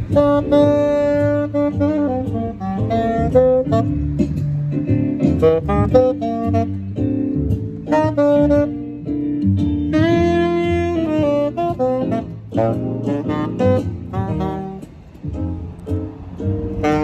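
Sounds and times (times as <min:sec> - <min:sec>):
tenor saxophone jazz line: 0:00.0 - 0:17.0.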